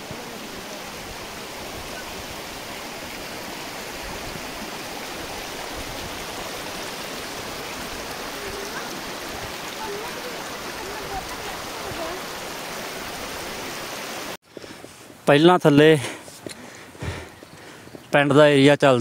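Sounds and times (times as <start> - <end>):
stream rushing over stones: 0.0 - 14.4.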